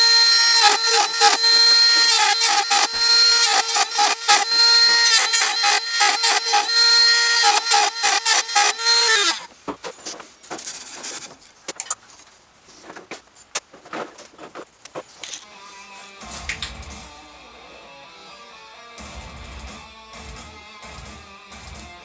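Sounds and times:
rotary tool whining: 0.0s - 9.5s.

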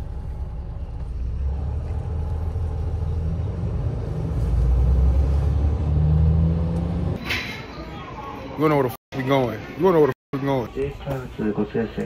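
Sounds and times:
coach bus rumbling from inside: 0.0s - 7.9s.

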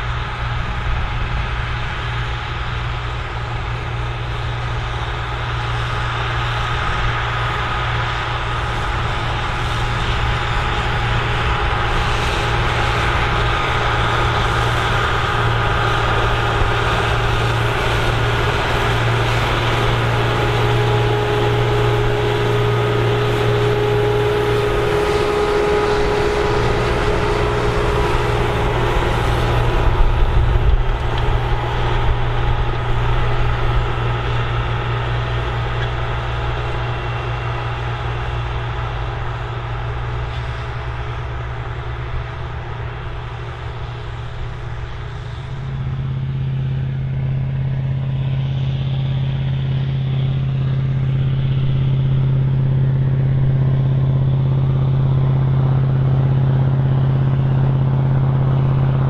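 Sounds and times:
tractor diesel engine running: 0.0s - 59.0s
held higher tone: 19.8s - 30.5s.

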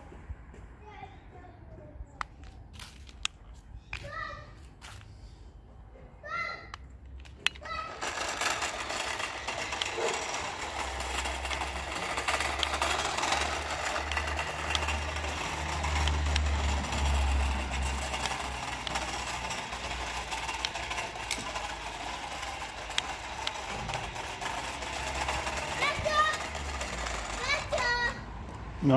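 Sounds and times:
wheels rolling on paving: 6.3s - 28.9s
small electric motor running: 7.4s - 28.2s.

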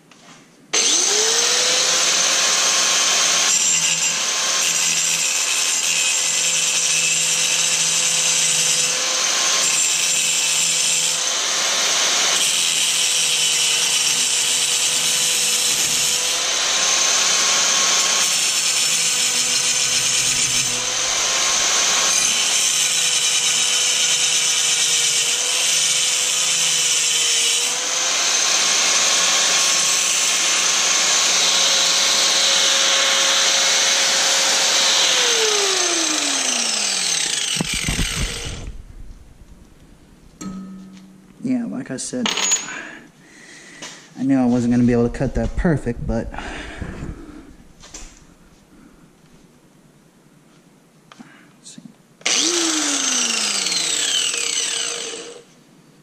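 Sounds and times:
power tool whine: 0.7s - 39.8s, 52.2s - 55.5s.

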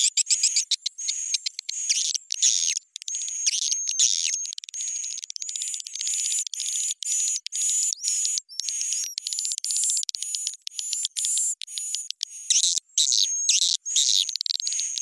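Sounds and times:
swiftlets twittering chirps: 0.0s - 15.0s.

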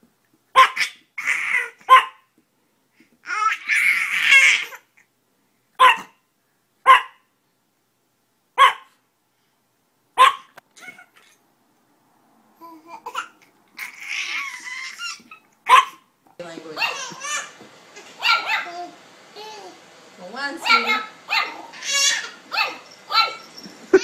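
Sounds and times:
small dog yapping: 0.6s - 2.3s, 5.8s - 6.2s, 6.9s - 7.2s, 8.6s - 8.9s, 10.2s - 11.4s, 13.8s - 16.1s, 16.8s - 18.9s, 20.6s - 24.0s
baby babbling and laughing: 0.7s - 1.9s, 3.2s - 5.0s, 10.7s - 11.4s, 12.6s - 15.5s, 17.0s - 17.5s.

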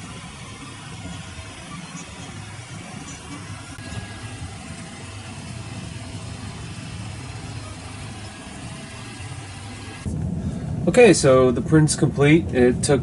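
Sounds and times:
three d printer whirring: 0.0s - 10.1s.

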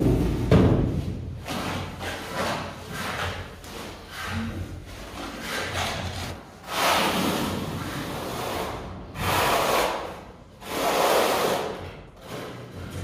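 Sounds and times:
steel trowel scraping adhesive: 4.0s - 12.7s.

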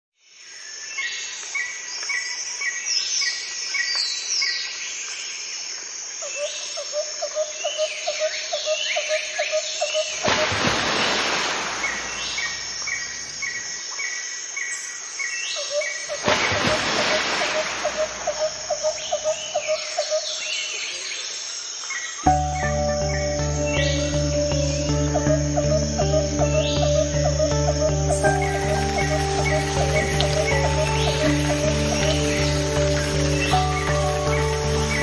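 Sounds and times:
birds chirping: 7.6s - 35.0s.

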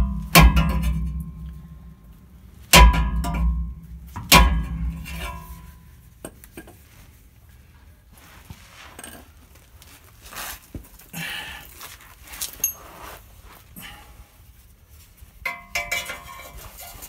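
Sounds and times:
hammer clanging on metal pipe: 2.8s - 5.7s, 15.5s - 16.6s.

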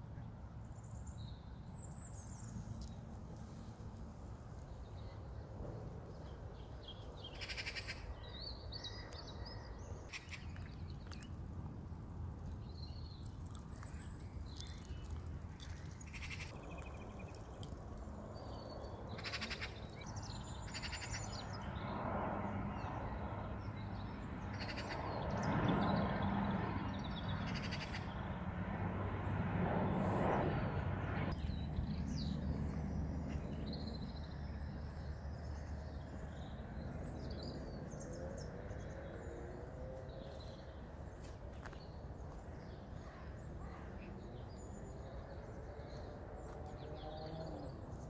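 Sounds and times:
plane engine drone overhead: 0.0s - 48.0s
birds calling: 6.7s - 11.3s, 12.8s - 21.8s, 24.1s - 28.4s.

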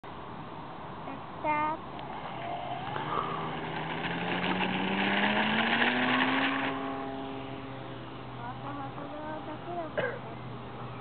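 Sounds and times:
small wheels rolling on asphalt: 1.8s - 8.2s
model plane motor whine: 1.9s - 9.9s.

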